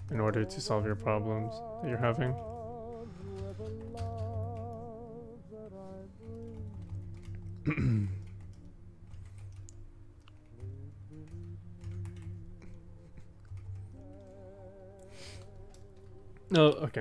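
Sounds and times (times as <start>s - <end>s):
quiet background music: 0.0s - 17.0s
keyboard clicks: 2.0s - 5.1s, 6.2s - 14.4s, 15.0s - 17.0s.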